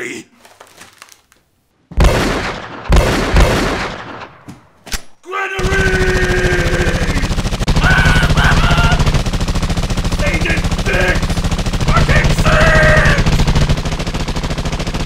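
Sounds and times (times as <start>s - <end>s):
automatic rifle fire: 2.0s - 4.4s, 5.6s - 15.0s
single gunshots: 2.0s - 4.5s
man yelling: 5.2s - 9.1s, 10.2s - 11.3s, 11.9s - 13.4s.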